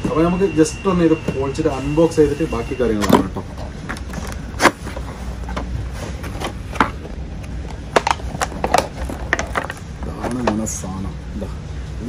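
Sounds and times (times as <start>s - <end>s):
low steady hum: 0.0s - 12.0s
cardboard packaging rustling: 4.0s - 10.6s.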